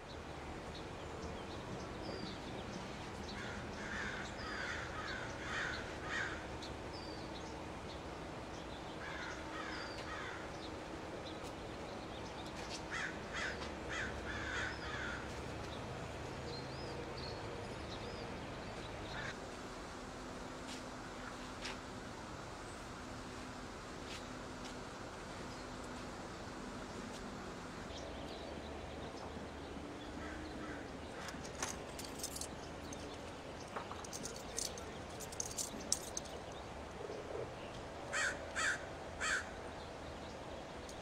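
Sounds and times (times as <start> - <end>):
steady background noise: 0.0 - 41.0
crow-like bird calls: 3.4 - 6.5, 9.0 - 10.5, 12.9 - 15.3, 38.1 - 39.6.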